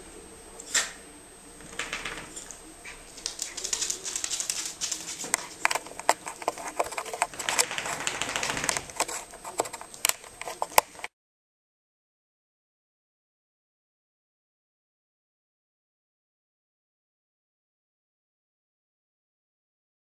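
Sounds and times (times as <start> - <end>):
dogs' claws clicking and scuffling: 1.6 - 11.1.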